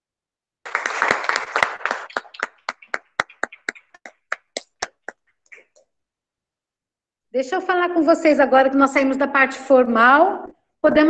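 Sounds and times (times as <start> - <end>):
hands clapping: 0.6 - 5.6.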